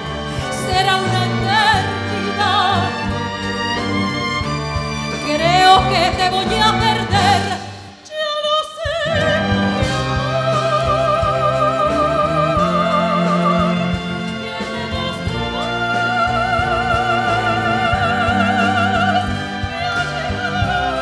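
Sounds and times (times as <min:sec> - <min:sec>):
soprano singing with vibrato: 0:00.0 - 0:03.8, 0:05.2 - 0:21.0
symphony orchestra: 0:00.0 - 0:21.0.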